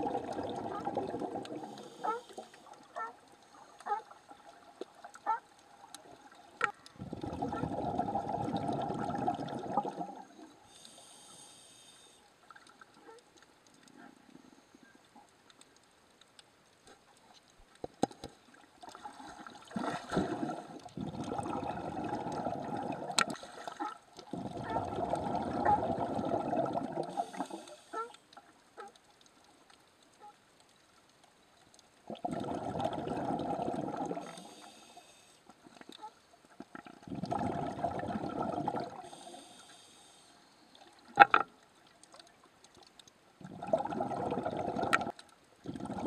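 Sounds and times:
underwater exhale bubbling: 0:00.0 - 0:02.6, 0:06.8 - 0:11.1, 0:18.9 - 0:27.9, 0:32.1 - 0:35.9, 0:36.7 - 0:39.7, 0:43.4 - 0:46.0
hissy regulator inhalations: 0:10.7 - 0:12.2, 0:39.1 - 0:40.4.

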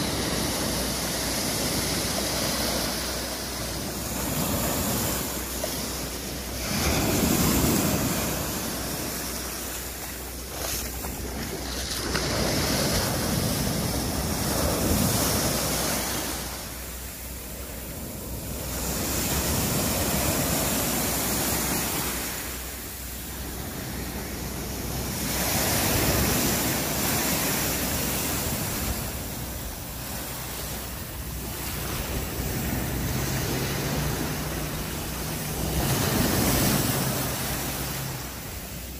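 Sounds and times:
small waves breaking on pebbles: 0:00.0 - 0:16.8.

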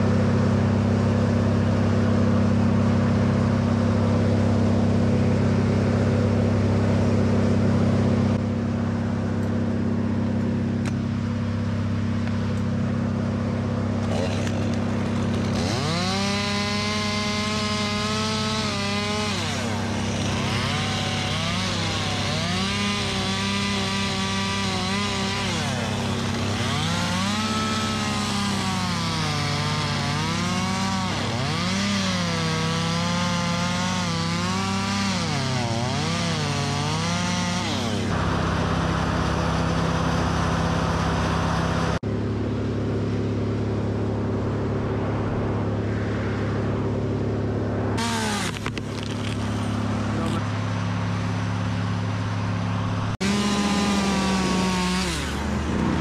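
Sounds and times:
low engine hum: 0:00.0 - 0:56.0
chainsaw cutting wood: 0:13.7 - 0:42.0, 0:48.0 - 0:50.8, 0:52.9 - 0:56.0.

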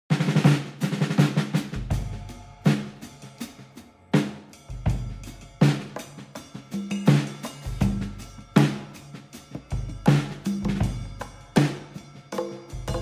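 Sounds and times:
drum-heavy music: 0:00.1 - 0:13.0.

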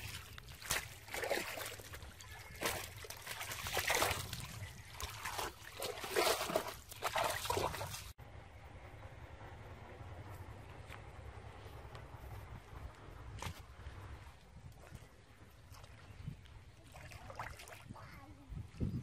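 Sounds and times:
feet wading through muddy water: 0:00.0 - 0:08.2, 0:15.0 - 0:17.9.

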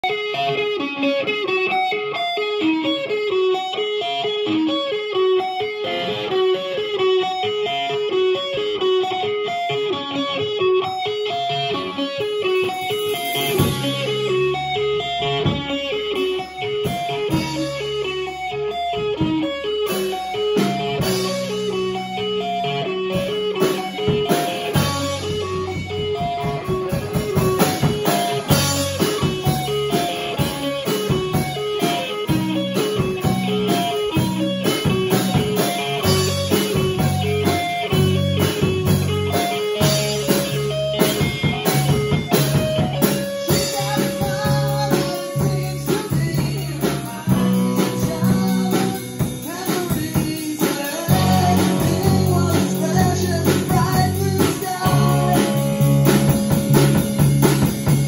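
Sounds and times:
bass guitar: 0:00.0 - 0:58.0
drums: 0:00.0 - 0:58.0
electric guitar riff: 0:00.0 - 0:58.0.

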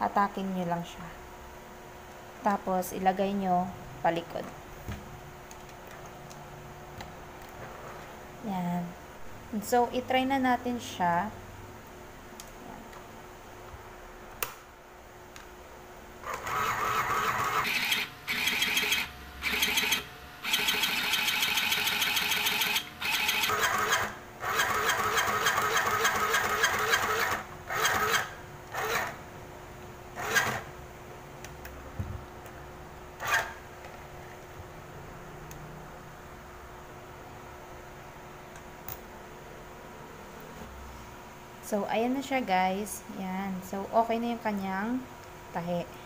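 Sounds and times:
sewing machine rattling: 0:16.3 - 0:29.2.

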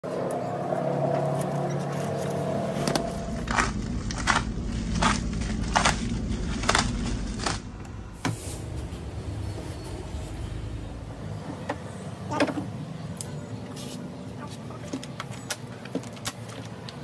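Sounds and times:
low hum: 0:00.0 - 0:11.6
plastic wrap ripping: 0:03.4 - 0:07.7.

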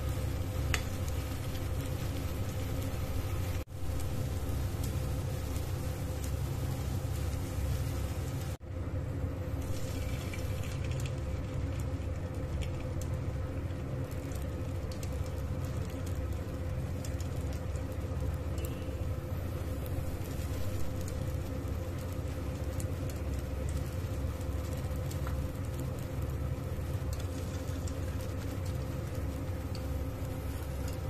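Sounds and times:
food frying in hot oil: 0:00.0 - 0:08.6, 0:09.2 - 0:31.0
steady low hum: 0:00.0 - 0:31.0.

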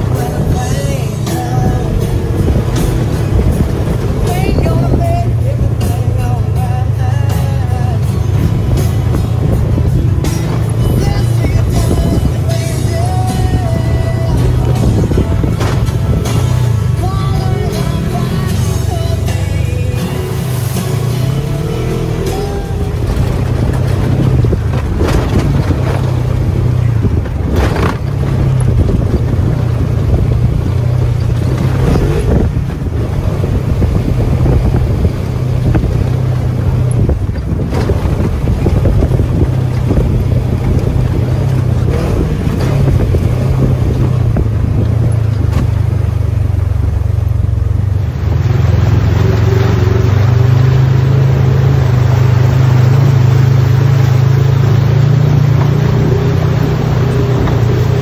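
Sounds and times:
vehicle engine running: 0:00.0 - 0:58.0
knocks and scrapes from trail: 0:23.0 - 0:29.9.

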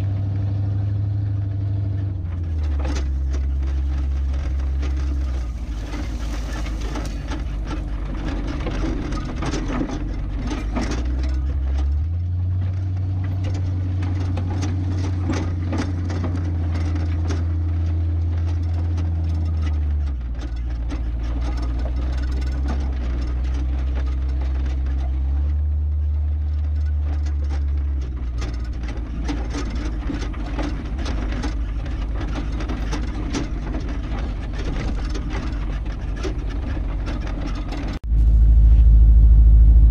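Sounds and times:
truck engine running: 0:00.0 - 0:39.9
rattling and knocking: 0:01.9 - 0:38.0.

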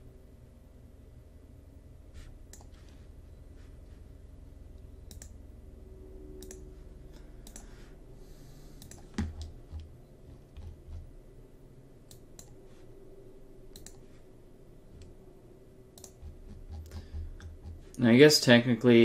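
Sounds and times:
steady low hum: 0:00.0 - 0:19.0
computer mouse clicks: 0:02.5 - 0:02.8, 0:05.0 - 0:05.4, 0:06.4 - 0:06.6, 0:07.4 - 0:07.7, 0:08.8 - 0:11.1, 0:12.0 - 0:12.6, 0:13.7 - 0:14.1, 0:15.9 - 0:18.0.

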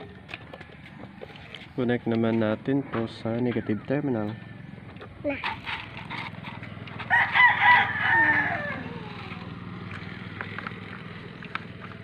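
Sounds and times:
rooster crowing: 0:07.0 - 0:09.2.

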